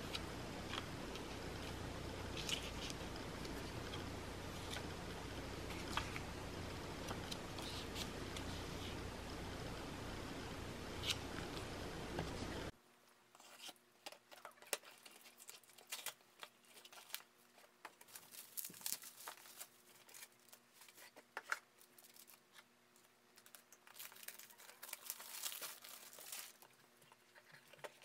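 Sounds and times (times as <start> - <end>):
bubble wrap crinkling: 14.4 - 28.0.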